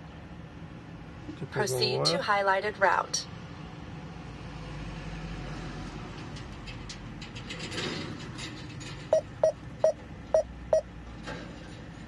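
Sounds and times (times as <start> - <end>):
low steady cab hum: 0.0 - 4.3, 8.6 - 12.0
gps navigator short beeps: 9.2 - 10.9.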